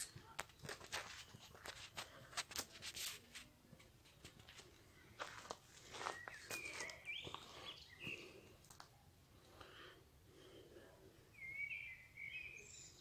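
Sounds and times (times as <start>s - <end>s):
faint footsteps on stony path: 0.0s - 9.9s.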